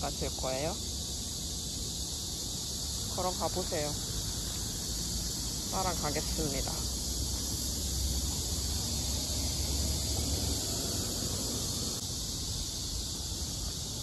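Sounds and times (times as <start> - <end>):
high-pitched hiss: 0.0 - 14.0.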